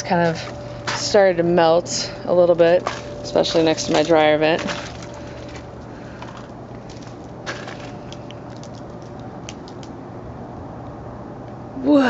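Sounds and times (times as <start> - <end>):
steady low hum: 0.0 - 12.0
footsteps crunching on icy snow: 2.6 - 9.2.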